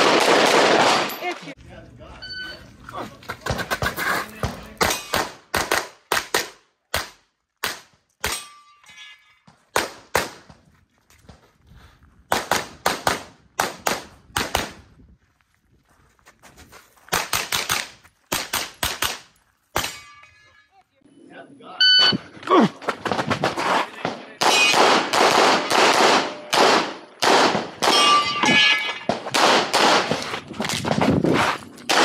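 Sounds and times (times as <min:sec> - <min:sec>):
pistol shots: 0:00.0 - 0:01.3, 0:24.0 - 0:28.4, 0:29.0 - 0:30.3.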